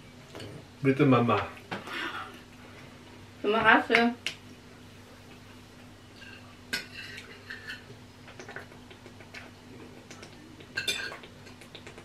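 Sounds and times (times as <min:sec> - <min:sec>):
cutlery clinking and scraping on plate: 0:06.2 - 0:07.9, 0:10.8 - 0:11.3.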